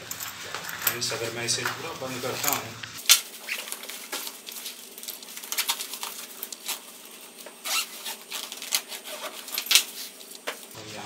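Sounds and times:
cloth rubbing: 0.0 - 10.8
zipper of fabric bag: 7.6 - 10.1.

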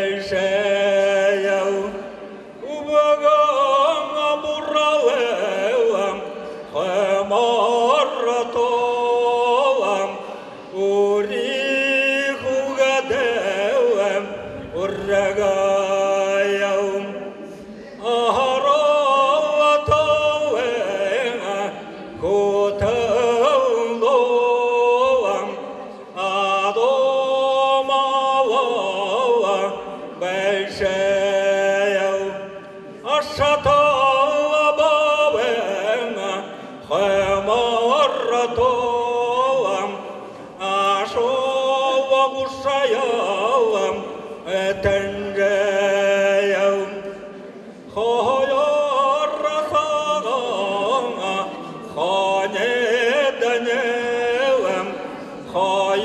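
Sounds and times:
man singing folk song: 0.0 - 47.3, 47.9 - 56.0.

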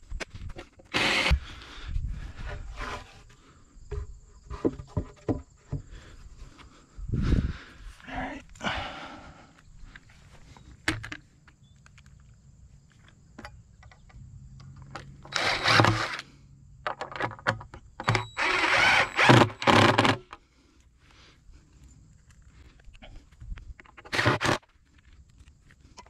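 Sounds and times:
cordless drill driving screws: 0.9 - 1.4, 15.2 - 16.2, 18.0 - 20.3, 24.0 - 24.6.

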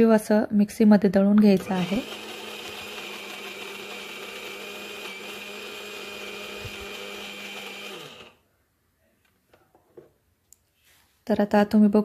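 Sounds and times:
electric mixer grinder running: 1.6 - 8.4.

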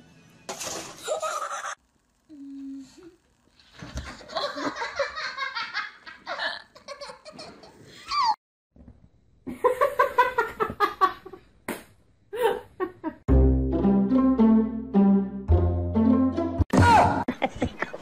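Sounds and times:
people laughing: 4.2 - 8.2, 17.3 - 18.0.

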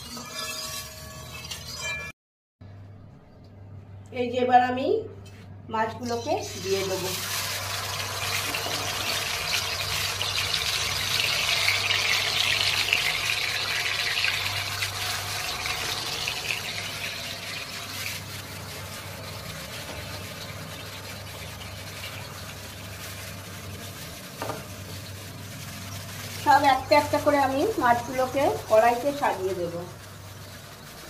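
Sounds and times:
fish sizzling in hot oil: 6.3 - 31.0.

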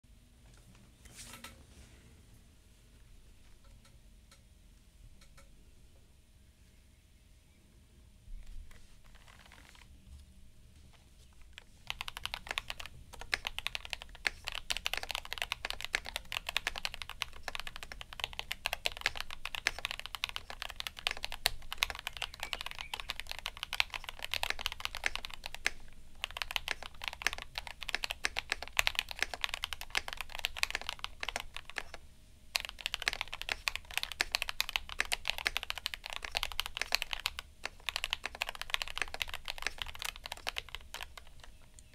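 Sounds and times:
fast typing on mechanical keyboard: 11.6 - 32.0, 32.6 - 41.6.

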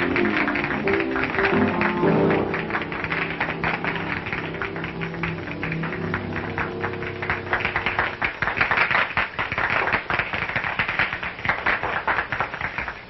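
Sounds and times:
band playing held notes: 0.0 - 9.5
hand-clapping applause: 0.0 - 13.0.

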